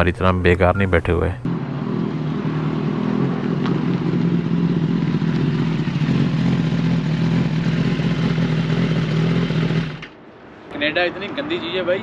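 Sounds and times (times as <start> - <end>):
motorcycle engine running: 1.5 - 10.2.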